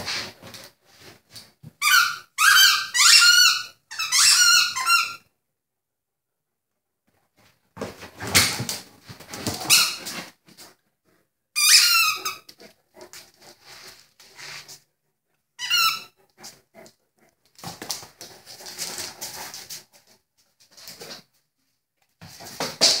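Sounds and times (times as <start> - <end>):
squeaky toy squeaking: 1.8 - 5.3, 11.6 - 12.5, 15.6 - 16.2.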